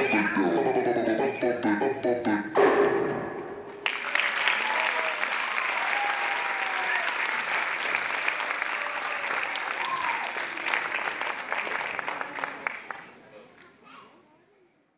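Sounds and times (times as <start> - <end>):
audience applauding: 3.8 - 13.2.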